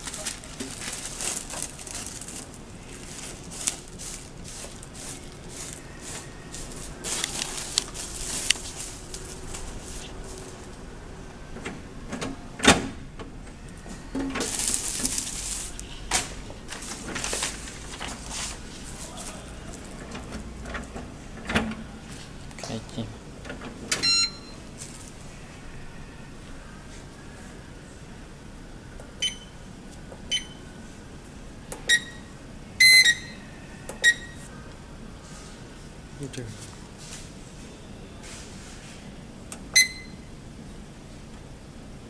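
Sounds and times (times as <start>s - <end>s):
laminating machine handling noises: 0.0s - 10.8s, 13.9s - 22.6s
electronic key beeps: 24.0s - 24.6s, 29.2s - 29.6s, 31.9s - 33.4s, 34.0s - 34.4s, 39.8s - 40.2s.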